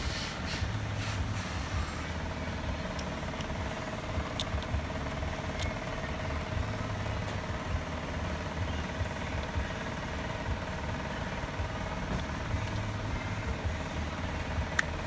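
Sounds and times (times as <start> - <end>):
machine humming: 0.0 - 15.0.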